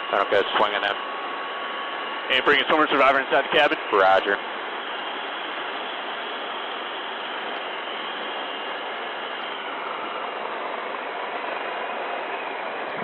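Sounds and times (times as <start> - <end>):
helicopter hovering through intercom: 0.0 - 1.0, 2.2 - 4.4.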